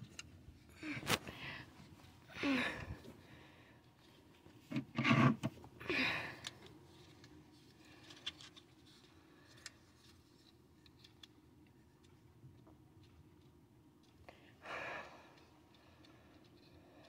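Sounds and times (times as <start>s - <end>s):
faint clicks and scratches: 6.4s - 14.4s, 15.2s - 17.0s.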